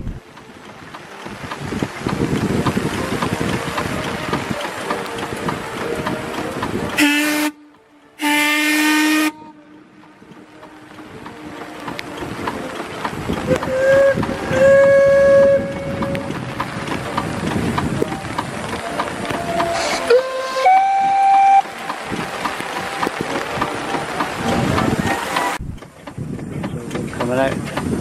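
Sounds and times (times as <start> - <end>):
rain hiss: 0.0 - 28.0
low steamboat whistle blasts: 7.0 - 9.6, 13.5 - 16.4, 19.2 - 21.9.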